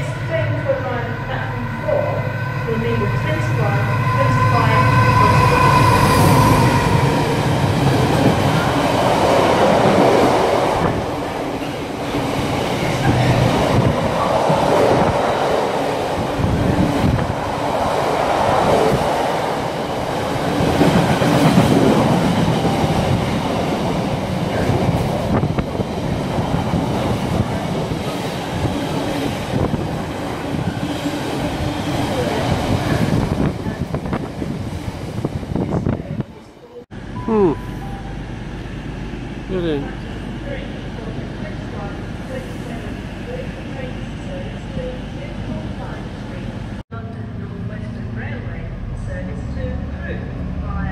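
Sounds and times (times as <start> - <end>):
freight train wheels on rails: 0.0 - 36.3.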